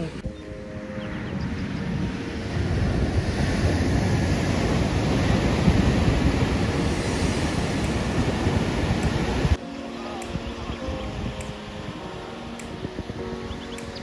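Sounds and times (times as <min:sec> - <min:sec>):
wind rumbling on microphone: 0:00.0 - 0:09.6, 0:10.2 - 0:14.0
surf breaking on beach: 0:02.1 - 0:09.6.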